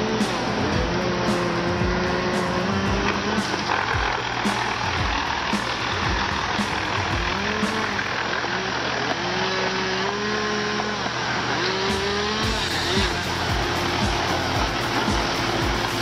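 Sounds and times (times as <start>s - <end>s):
diesel engine under load: 0.0s - 16.0s.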